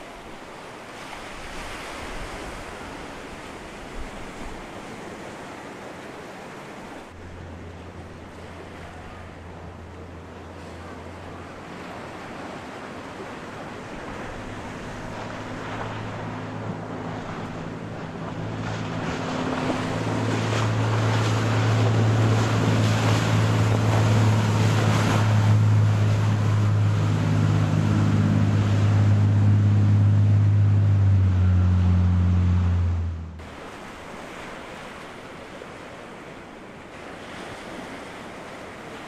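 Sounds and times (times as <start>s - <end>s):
bow wave and wake rushing: 0.0s - 39.0s
boat diesel engines droning: 7.0s - 37.2s.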